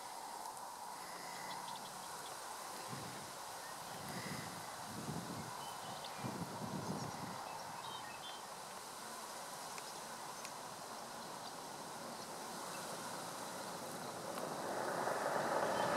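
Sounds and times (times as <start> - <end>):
outdoor background hiss: 0.0 - 15.9.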